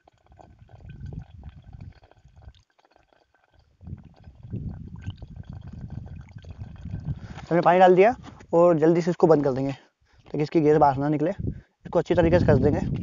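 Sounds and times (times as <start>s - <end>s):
water gurgling from bottle: 0.0s - 8.6s, 11.5s - 13.0s.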